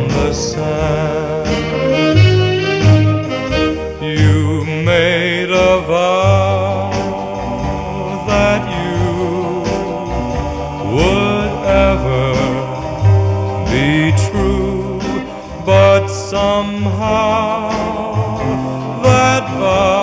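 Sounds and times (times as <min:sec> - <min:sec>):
music with bass and beat: 0:00.0 - 0:20.0
person singing long wavering notes: 0:04.0 - 0:20.0.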